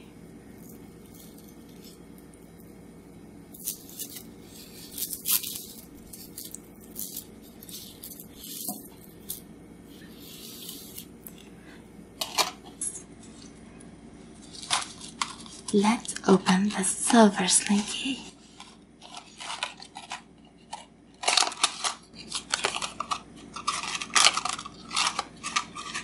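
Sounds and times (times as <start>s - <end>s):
slinky coils clicking: 3.5s - 11.4s.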